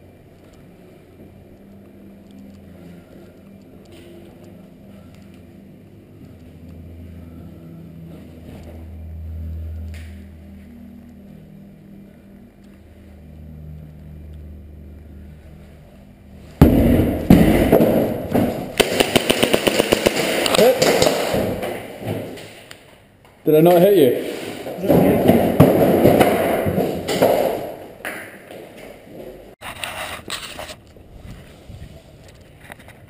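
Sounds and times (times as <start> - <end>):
low rumble: 0.0 - 18.8
airsoft gunfire: 16.6 - 21.9.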